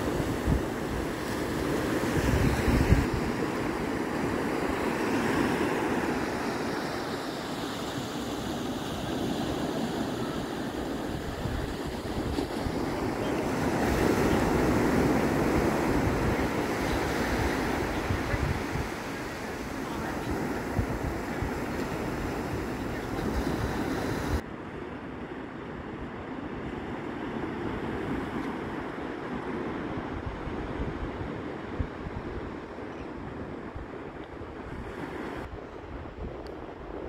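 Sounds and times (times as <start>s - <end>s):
wind buffeting microphone: 0.0s - 6.8s, 9.3s - 24.4s, 29.8s - 37.0s
small waves washing up a beach: 0.0s - 36.1s.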